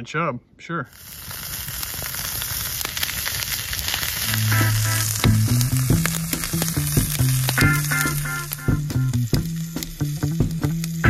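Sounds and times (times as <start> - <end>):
fish sizzling in hot oil: 0.9 - 11.0
oil popping and spattering: 0.9 - 11.0
background music with bass: 4.2 - 11.0.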